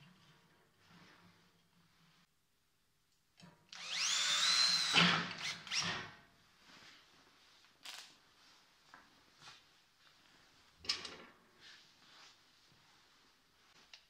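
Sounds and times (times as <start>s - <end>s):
power drill whining: 3.7s - 6.1s.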